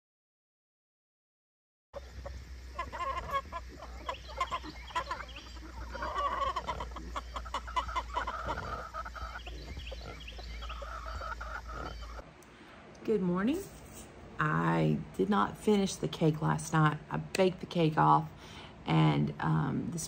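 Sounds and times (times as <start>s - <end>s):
farm animals calling: 2.0s - 12.3s
steady low hum: 2.0s - 20.0s.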